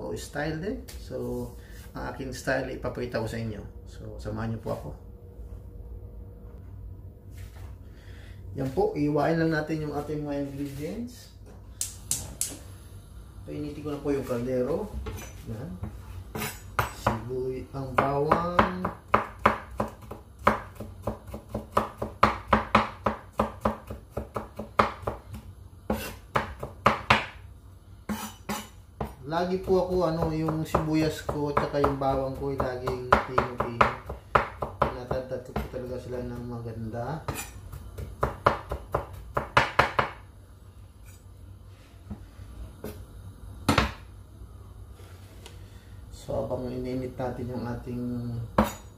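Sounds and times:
knife chopping on wooden board: 18.0s - 27.4s, 28.1s - 36.5s, 37.3s - 40.2s, 43.7s - 44.0s, 48.6s - 48.8s.

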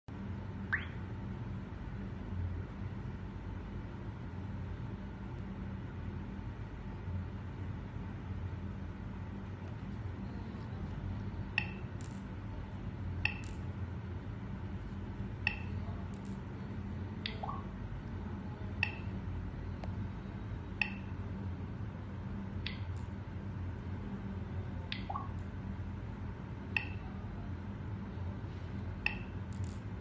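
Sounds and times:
low hum: 0.1s - 30.0s
touch screen click-beeps: 0.7s - 1.0s, 11.6s - 11.9s, 13.3s - 13.5s, 15.5s - 15.8s, 17.2s - 17.7s, 18.8s - 19.1s, 20.8s - 21.1s, 24.9s - 25.4s, 26.8s - 27.1s, 29.0s - 29.4s.

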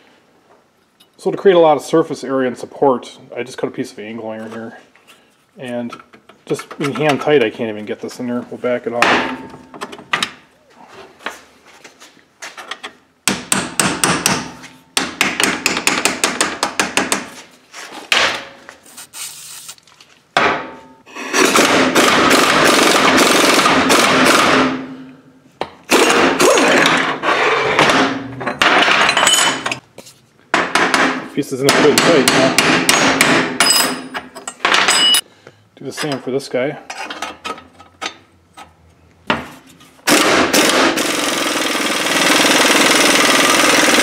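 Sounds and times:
impact wrench hammering: 13.2s - 17.3s, 21.3s - 25.0s, 30.6s - 34.2s, 40.0s - 44.0s.

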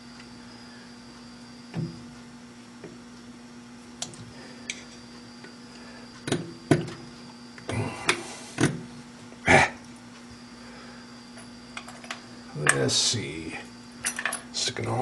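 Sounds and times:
steady mains hum: 0.0s - 15.0s.

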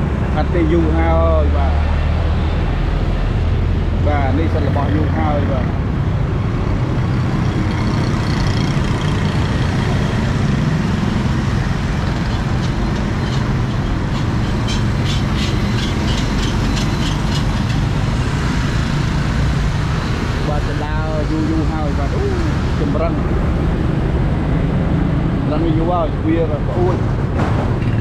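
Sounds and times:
motorbikes and vehicles on road: 0.0s - 28.0s.

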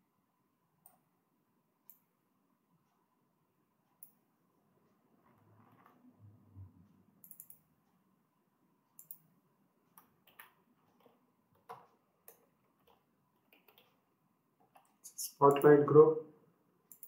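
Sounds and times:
computer mouse clicks: 7.2s - 7.7s, 9.0s - 9.3s, 9.9s - 14.0s.

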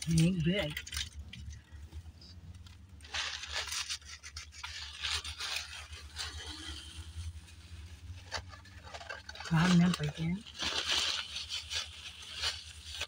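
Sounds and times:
paper napkin rustling and scraping: 3.0s - 13.0s.

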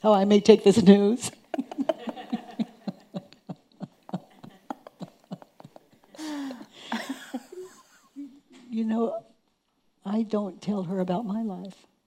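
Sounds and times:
soft breathy laughter: 1.5s - 8.6s.

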